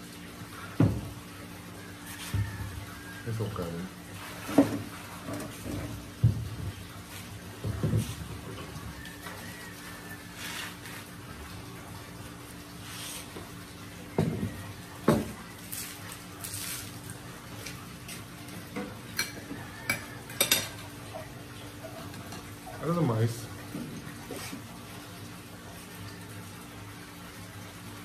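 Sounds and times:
dishes and cutlery clinking: 18.7 - 22.5.

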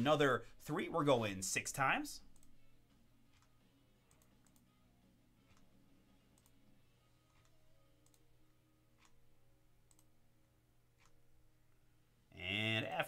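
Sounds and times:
low room hum: 0.0 - 13.0
computer mouse clicks: 2.3 - 2.6, 3.3 - 4.7, 6.3 - 6.6, 7.3 - 8.3, 9.8 - 10.1, 11.0 - 11.2.

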